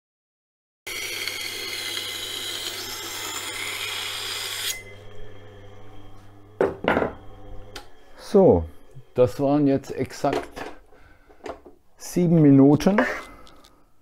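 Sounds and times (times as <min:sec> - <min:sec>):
knife grinding on sharpening wheel: 0:00.9 - 0:05.5
low motor hum: 0:04.1 - 0:10.0.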